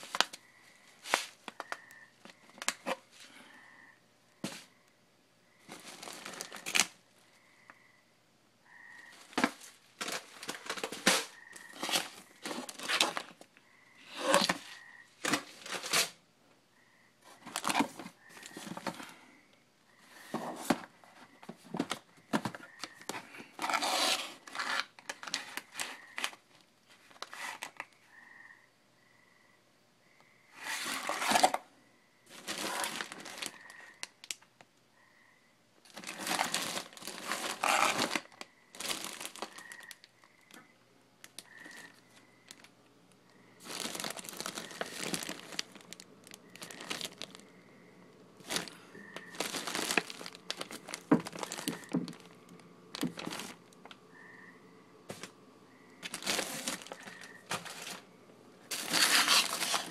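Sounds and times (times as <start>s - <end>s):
plastic packaging crinkling: 0.0s - 0.4s, 2.5s - 3.1s, 5.7s - 7.0s, 9.1s - 13.5s, 14.1s - 16.2s, 17.3s - 19.1s, 21.7s - 27.9s, 30.6s - 31.6s, 32.3s - 34.5s, 35.9s - 40.6s, 41.2s - 42.7s, 43.6s - 47.5s, 48.1s - 54.0s, 56.0s - 58.1s, 58.7s - 59.9s.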